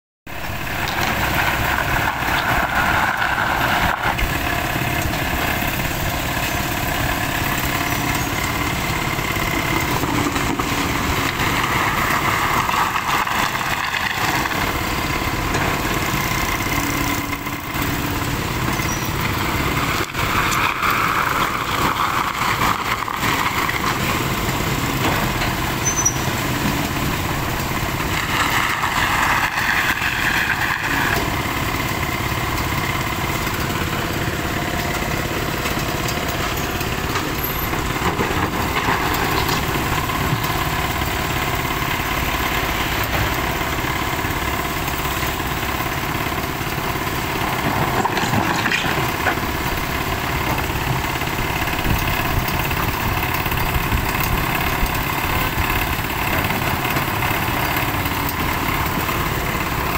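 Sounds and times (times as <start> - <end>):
excavator diesel engine: 0.2 - 59.9
street traffic: 0.3 - 59.9.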